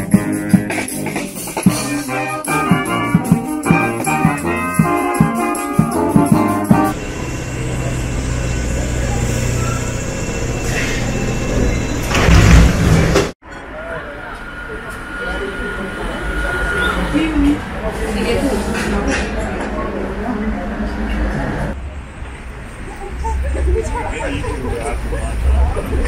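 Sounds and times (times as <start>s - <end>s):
street band with drum beats: 0.0s - 7.0s
train rumbling: 2.7s - 26.0s.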